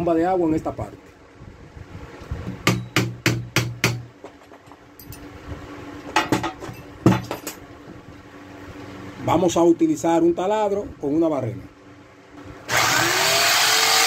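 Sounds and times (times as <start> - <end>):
hammer tapping nail on metal: 2.6 - 4.1.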